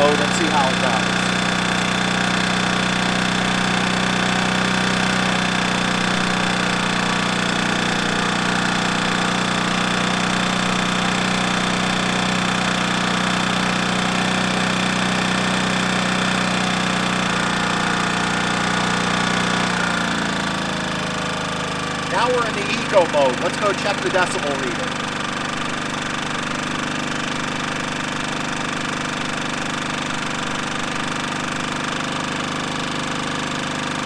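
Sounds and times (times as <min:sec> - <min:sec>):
generator running: 0:00.0 - 0:34.0.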